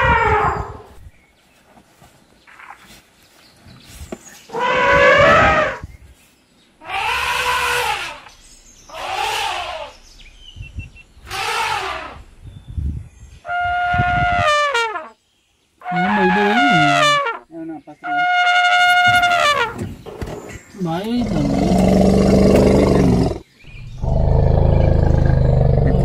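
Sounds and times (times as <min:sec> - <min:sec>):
elephants trumpeting: 0:04.5 - 0:05.8, 0:06.8 - 0:08.2, 0:08.9 - 0:09.9, 0:11.3 - 0:12.2, 0:15.8 - 0:17.2, 0:21.1 - 0:26.0.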